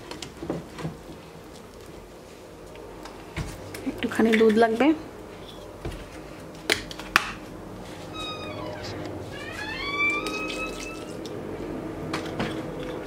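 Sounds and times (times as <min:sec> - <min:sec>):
gliding squeaks: 0:08.1 - 0:11.4.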